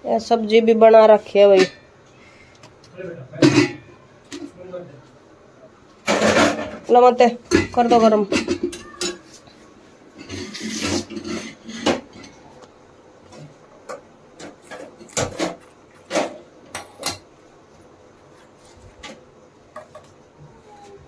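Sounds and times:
scraping rustle: 9.1s - 12.4s.

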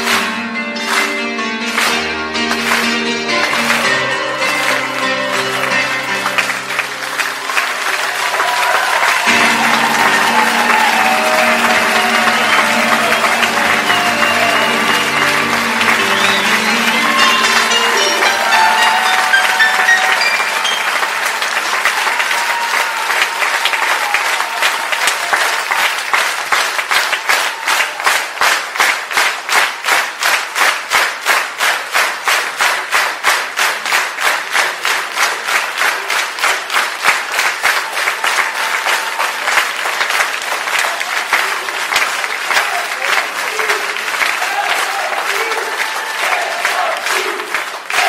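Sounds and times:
large crowd applauding: 0.0s - 48.0s
rhythmic unison clapping: 0.0s - 48.0s.

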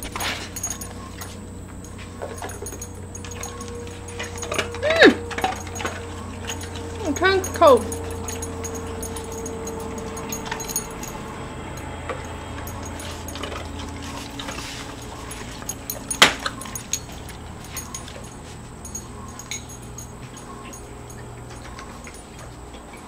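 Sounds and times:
dogs crunching ice cubes: 0.0s - 23.0s.

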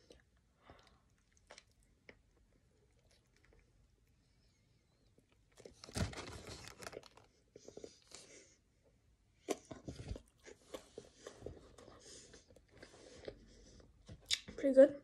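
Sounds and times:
person chewing hamburger: 0.0s - 4.2s, 9.4s - 14.5s.

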